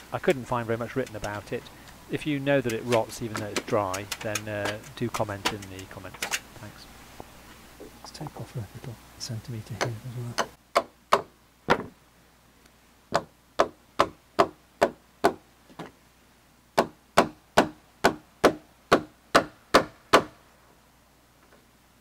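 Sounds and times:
hand tool striking timber: 1.0 - 1.5, 2.6 - 6.4.

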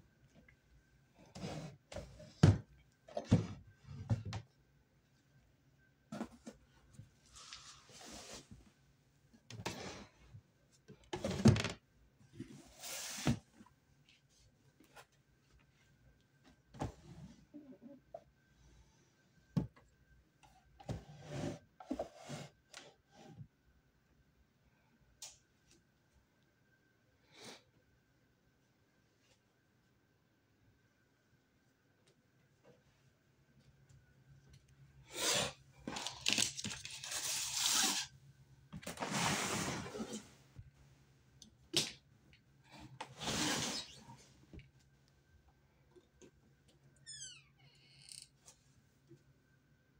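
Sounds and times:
plastic rustling and crinkling: 35.8 - 38.1
drawer scraping: 38.8 - 40.4.

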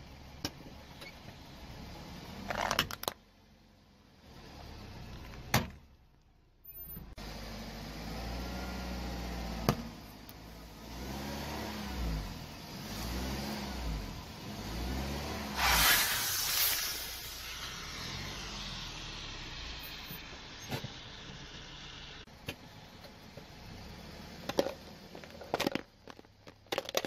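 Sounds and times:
aerosol can bursting with hiss: 15.4 - 22.3.

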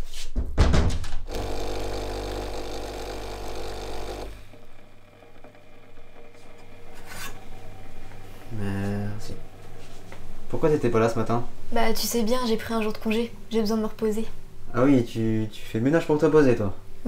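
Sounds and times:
coffee pouring into cup: 1.3 - 4.8
coffee machine pump buzzing: 1.3 - 10.6.

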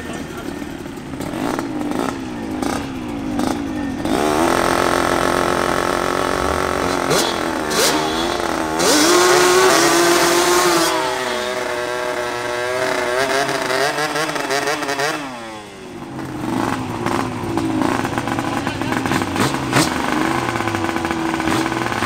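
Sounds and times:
two-stroke engines revving: 0.0 - 22.0
loud engine hiss: 4.0 - 12.4.

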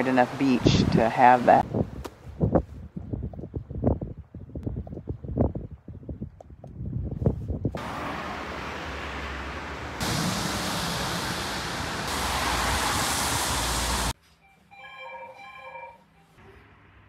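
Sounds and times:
wind blowing on microphone: 0.6 - 7.8.

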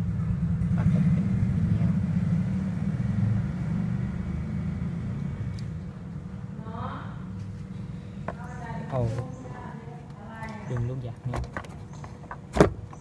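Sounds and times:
steady low rumble: 0.0 - 10.2.

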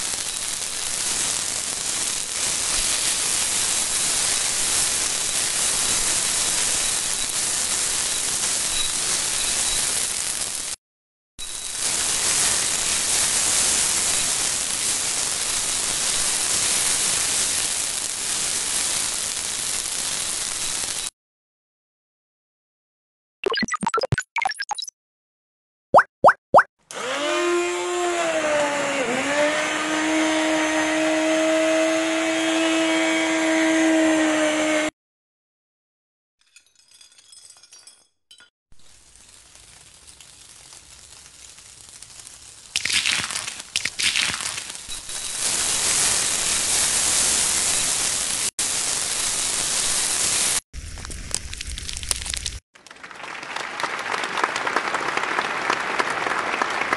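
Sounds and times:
hot oil sizzling: 0.0 - 10.8, 11.4 - 21.1, 38.7 - 52.6
mixer grinder motor humming: 26.9 - 34.9.

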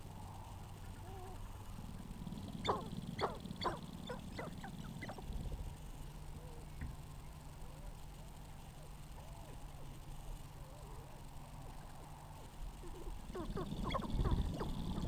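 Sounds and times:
low steady rumble: 0.0 - 15.0
grouse yelping: 2.2 - 5.4, 12.8 - 15.0.

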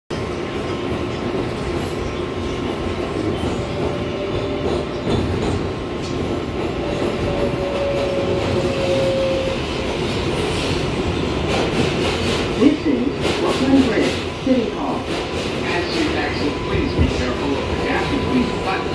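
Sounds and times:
subway train wheels rumbling on rail: 0.1 - 18.9.

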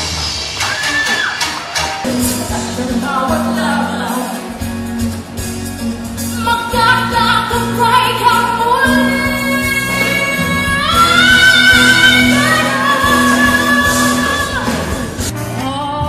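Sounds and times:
band accompaniment: 0.0 - 16.0
woman singing into a microphone: 2.4 - 4.5, 6.3 - 16.0.

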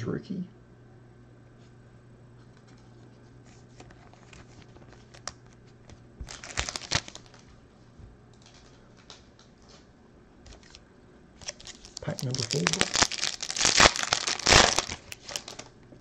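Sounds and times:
foil wrappers crinkling: 3.5 - 5.6, 6.2 - 7.5, 8.4 - 9.5, 11.4 - 15.8.

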